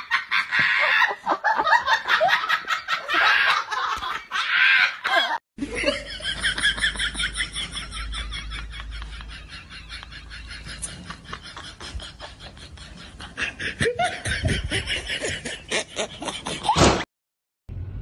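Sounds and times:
person laughing: 0:00.0 - 0:17.0.

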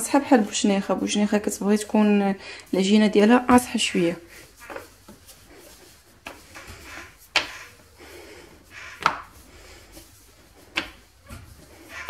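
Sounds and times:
rolling pin rolling dough: 0:00.0 - 0:12.0.

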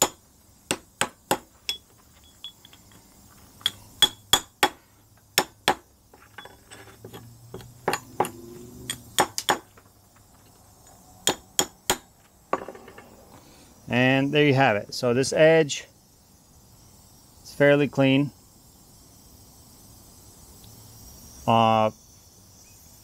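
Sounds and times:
chipping hammer striking metal: 0:00.0 - 0:01.5, 0:03.6 - 0:04.8, 0:05.4 - 0:05.8, 0:07.8 - 0:09.7, 0:11.2 - 0:12.1.

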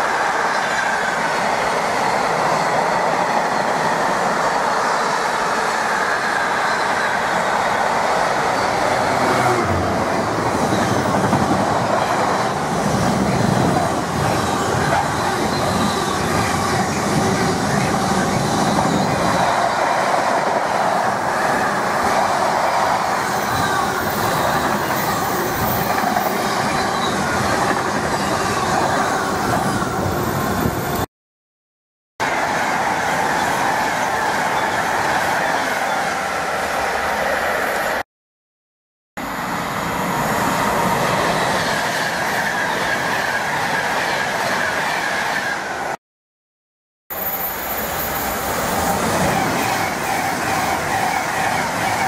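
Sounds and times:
electric train approaching: 0:00.0 - 0:31.0, 0:39.2 - 0:46.0, 0:47.1 - 0:52.0
train wheels on rails: 0:00.0 - 0:31.0, 0:47.2 - 0:52.0.

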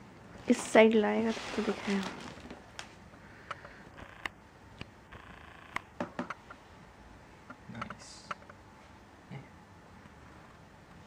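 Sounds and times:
rustling: 0:00.4 - 0:03.8.

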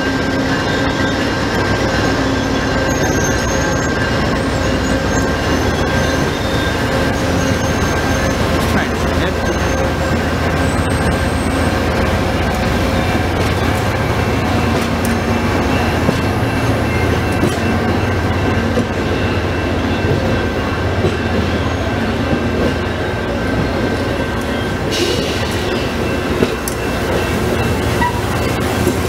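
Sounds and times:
rail joint clicks: 0:00.0 - 0:29.0
train wheels rumbling on rail: 0:00.0 - 0:29.0.

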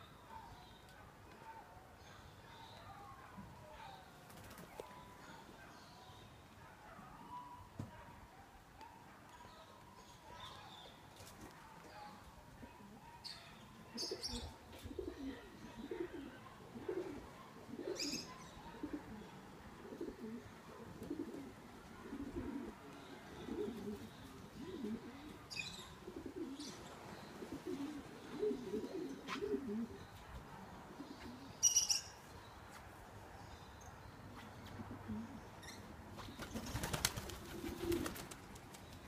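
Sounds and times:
pigeons cooing: 0:13.9 - 0:30.1, 0:30.9 - 0:31.9, 0:34.7 - 0:35.5, 0:36.2 - 0:38.4.

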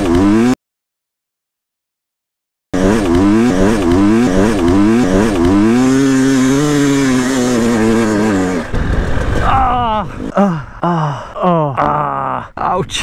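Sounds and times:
dirt bike engine revving: 0:00.0 - 0:00.6, 0:02.8 - 0:10.3.

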